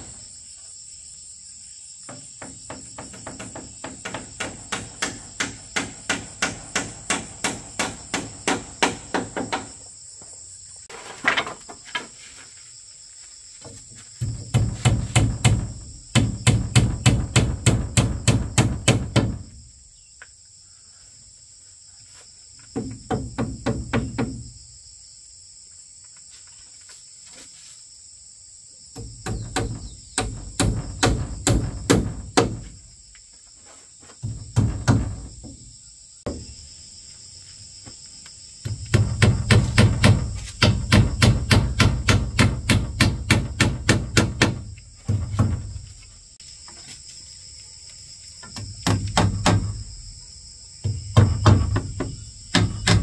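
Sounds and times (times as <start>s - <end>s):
high insect drone: 0.0s - 53.0s
hammering on wood: 2.1s - 9.8s, 14.2s - 19.5s, 22.7s - 24.5s, 29.0s - 32.8s, 34.2s - 35.6s, 38.6s - 45.7s, 48.5s - 49.8s, 50.8s - 53.0s.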